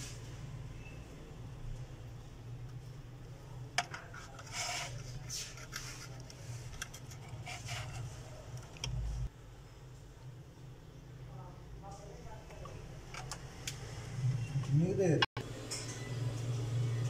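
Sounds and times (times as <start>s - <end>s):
scratchy rubbing of small parts: 3.8s - 8.8s.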